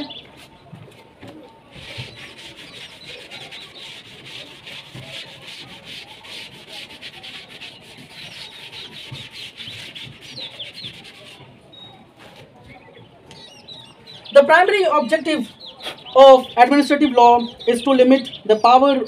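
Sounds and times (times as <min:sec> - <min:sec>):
duster scrubbing on chalkboard: 0:01.7 - 0:12.6.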